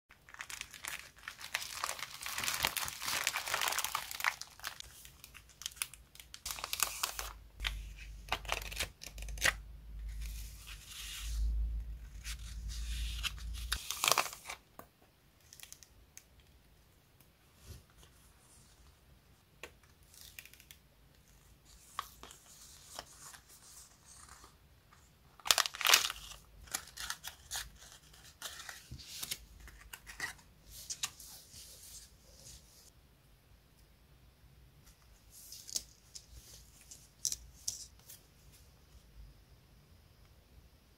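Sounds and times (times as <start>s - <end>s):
cellophane crinkling and tearing: 0.1s - 9.6s, 13.2s - 14.6s, 25.4s - 30.4s.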